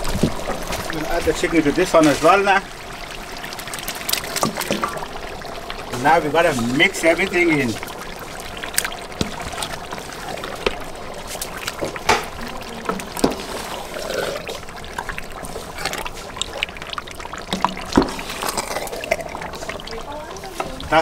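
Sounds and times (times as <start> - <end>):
spoon stirring wet sauce: 5.9 - 21.0.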